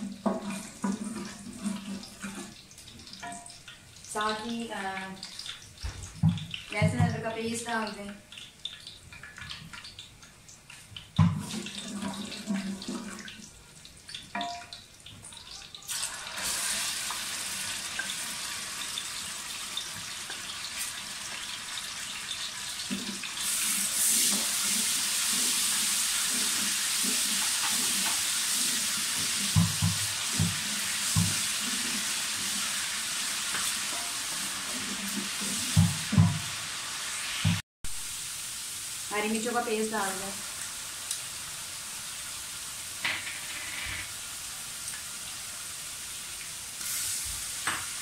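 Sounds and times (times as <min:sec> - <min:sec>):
wooden spoon knocking on pot: 0:06.0 - 0:07.2, 0:29.5 - 0:31.5
paste sizzling in hot oil: 0:15.4 - 0:48.0.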